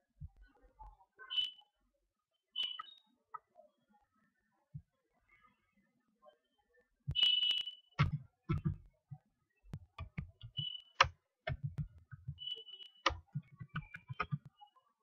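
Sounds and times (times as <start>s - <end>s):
mouse clicks: 7.1s - 8.8s, 9.8s - 14.6s
soft low knocks: 8.0s - 8.8s, 11.5s - 12.4s.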